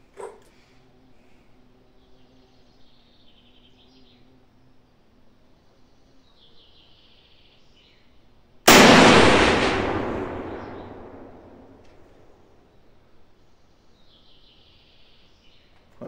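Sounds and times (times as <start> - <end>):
rifle shot with long echo: 8.7 - 12.5.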